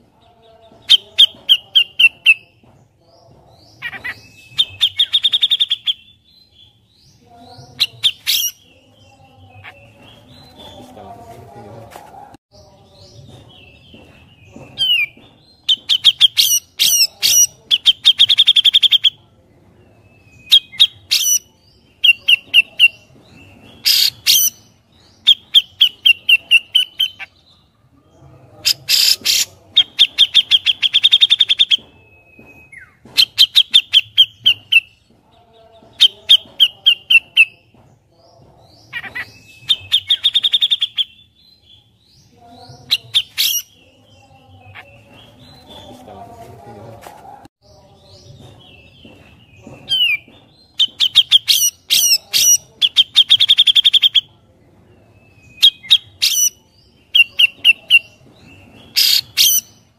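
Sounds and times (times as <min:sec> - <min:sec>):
bird singing high chirps: 0:03.6 - 0:11.0, 0:38.8 - 0:46.1.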